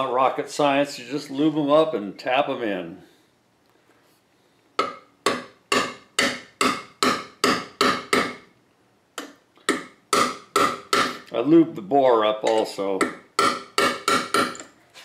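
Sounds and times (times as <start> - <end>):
mallet tapping metal: 4.8 - 8.4, 9.2 - 11.2, 12.4 - 14.7.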